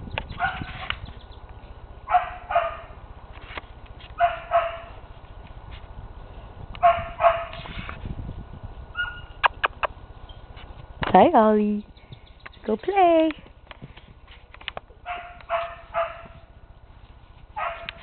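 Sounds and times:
puppy high-pitched barks: 0.4 - 0.8, 2.1 - 3.0, 4.2 - 4.9, 6.8 - 7.6, 15.0 - 16.4, 17.6 - 18.0.

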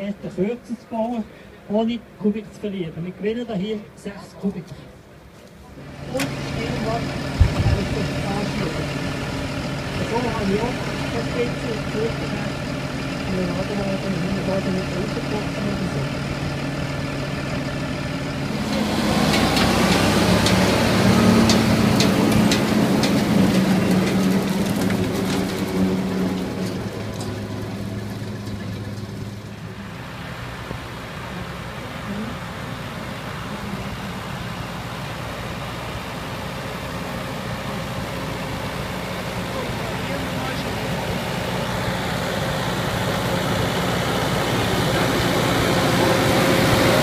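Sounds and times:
tractor diesel engine: 0.0 - 47.0
machinery clicks and rattles: 18.6 - 29.7.

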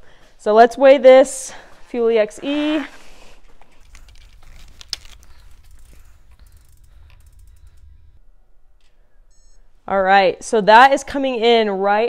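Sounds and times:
low handling rumble: 3.1 - 11.2
bike clattering on scale: 3.7 - 8.2.

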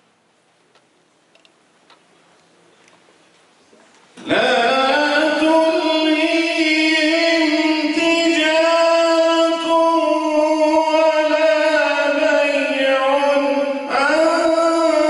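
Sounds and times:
man reciting in melodic chant: 4.2 - 15.0.

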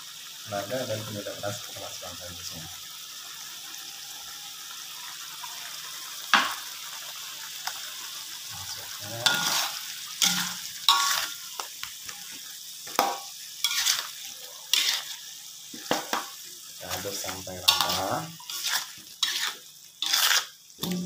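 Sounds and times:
paste sizzling in a wok: 0.0 - 21.0
metal spoon scraping a pan: 8.6 - 12.2, 12.9 - 16.3, 16.9 - 21.0.

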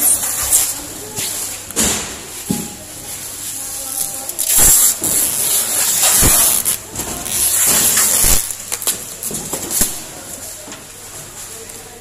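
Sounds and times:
plastic wrap crinkling: 3.2 - 10.6.

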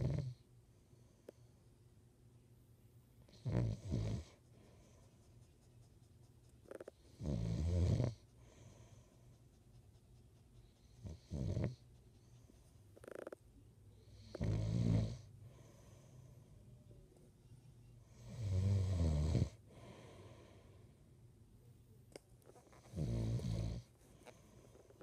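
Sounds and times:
man snoring: 3.3 - 4.3, 7.2 - 8.2, 11.1 - 11.8, 14.1 - 15.3, 18.2 - 19.6, 22.9 - 23.9.

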